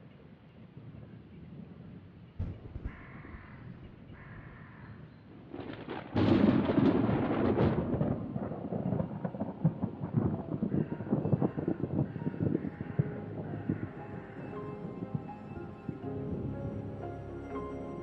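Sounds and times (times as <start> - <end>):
thunderclap rumbling: 2.4 - 17.0
crows cawing: 2.6 - 5.1, 10.5 - 15.1.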